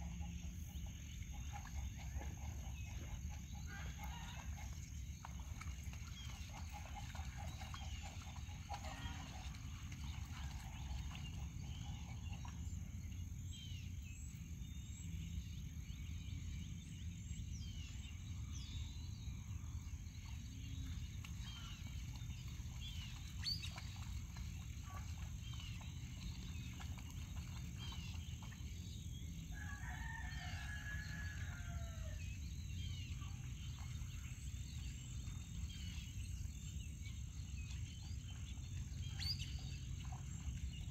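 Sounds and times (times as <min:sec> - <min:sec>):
rooster crowing: 0:29.5 - 0:32.2.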